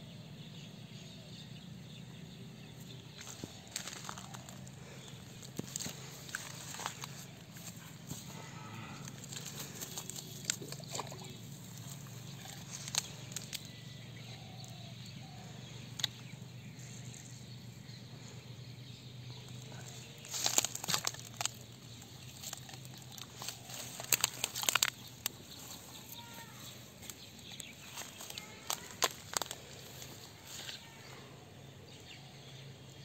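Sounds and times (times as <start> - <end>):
sharp clicks and rustles: 9.0 - 13.7, 19.5 - 30.3.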